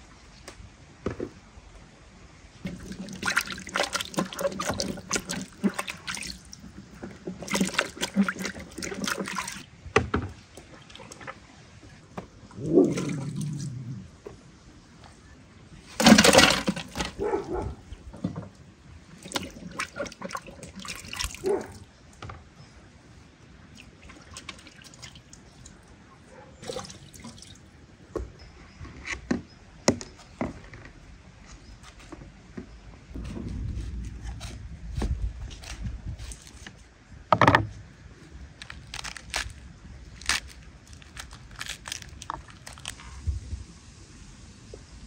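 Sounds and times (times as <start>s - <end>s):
water splashing and dripping: 2.6s - 9.7s, 16.0s - 21.9s, 23.6s - 26.0s, 26.6s - 27.8s, 38.6s - 43.1s.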